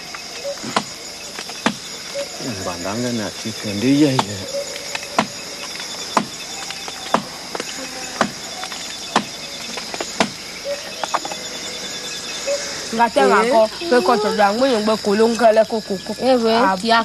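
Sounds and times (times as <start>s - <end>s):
crickets and insects chirping: 0.0s - 17.0s
blade chopping tree bark: 9.1s - 9.4s, 10.0s - 10.4s.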